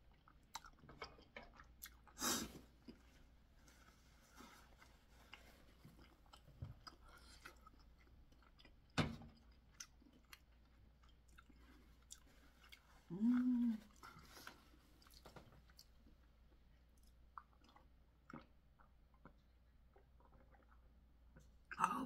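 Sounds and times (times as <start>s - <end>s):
close chewing with mouth clicks: 0.0s - 21.6s
person humming: 13.1s - 13.9s.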